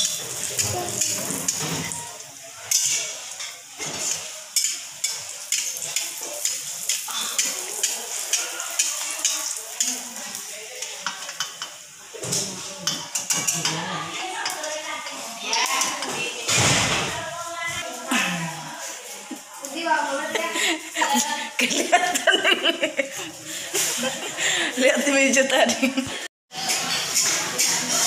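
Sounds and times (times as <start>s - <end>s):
metal spatula scraping a wok: 0.0s - 2.0s, 2.6s - 10.1s, 26.5s - 28.0s
oil sizzling in a wok: 0.0s - 25.2s, 26.5s - 28.0s.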